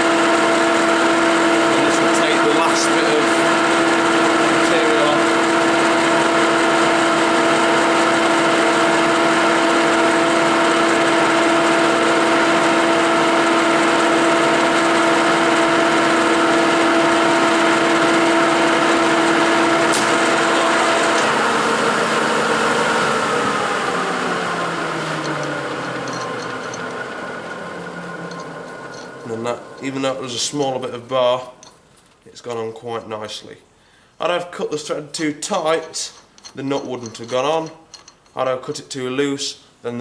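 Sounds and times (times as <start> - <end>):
lathe humming and whining: 0.0 - 31.0
machine winding down: 0.1 - 31.0.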